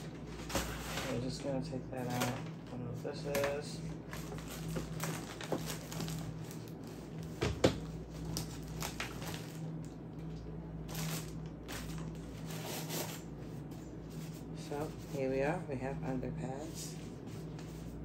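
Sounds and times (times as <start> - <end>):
steady low hum: 0.0 - 18.0
plastic packaging crinkling: 3.3 - 9.9, 10.8 - 13.2.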